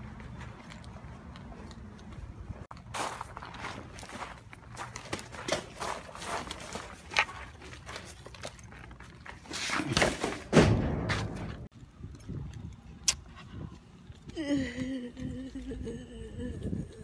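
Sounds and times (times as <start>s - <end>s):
footsteps: 0.0s - 11.7s
loud thump: 10.5s - 11.7s.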